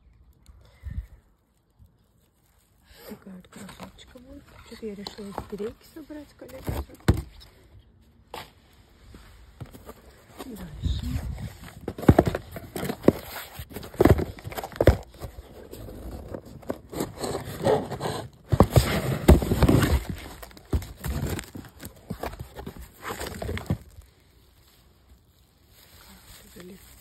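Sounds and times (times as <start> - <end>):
plastic packaging rustling: 1.4 - 27.0
knocks and scrapes: 8.2 - 24.0.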